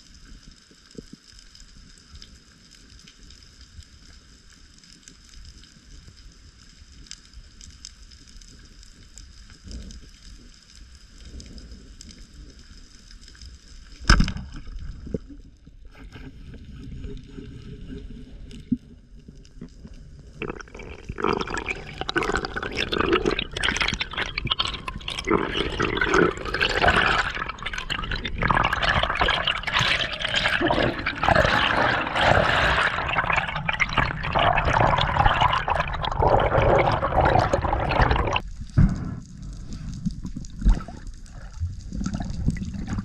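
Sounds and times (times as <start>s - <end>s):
low underwater rumble: 8.7s - 43.0s
water bubbling and churning: 20.1s - 38.7s, 39.4s - 43.0s.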